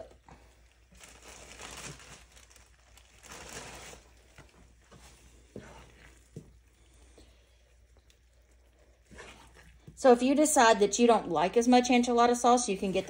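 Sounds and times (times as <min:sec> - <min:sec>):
plastic bag crinkling: 0:00.0 - 0:07.1
wooden spoon scraping skillet: 0:05.0 - 0:07.2, 0:08.6 - 0:10.2.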